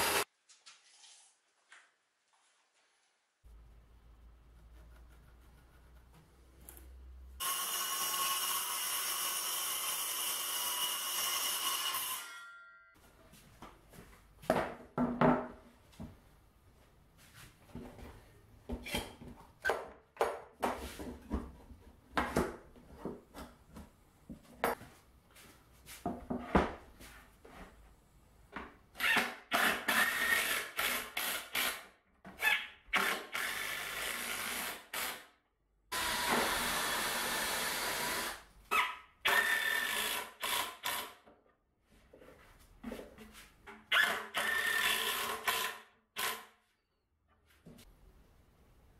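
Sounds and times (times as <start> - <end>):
cordless drill into plywood: 0.0 - 0.2, 29.0 - 31.8, 32.9 - 35.2, 35.9 - 41.2, 43.9 - 46.5.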